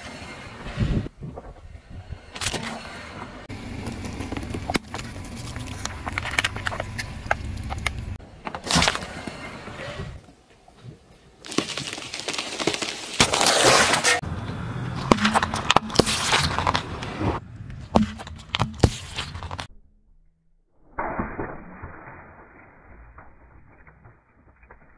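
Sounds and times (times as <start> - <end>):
tyre crushing objects on asphalt: 3.5 - 9.0, 11.4 - 14.2, 14.9 - 19.7.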